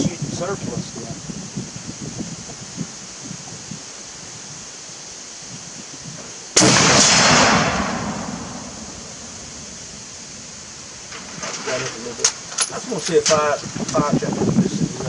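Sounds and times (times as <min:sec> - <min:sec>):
rifle shot: 0:06.6 - 0:09.7.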